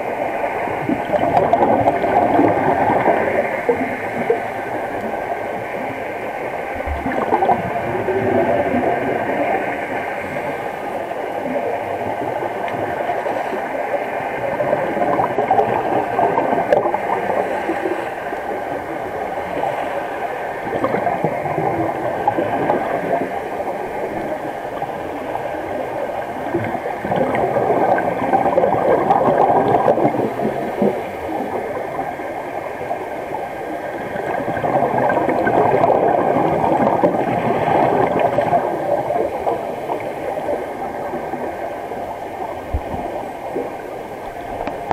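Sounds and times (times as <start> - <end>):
underwater bubbling: 0.0 - 44.9.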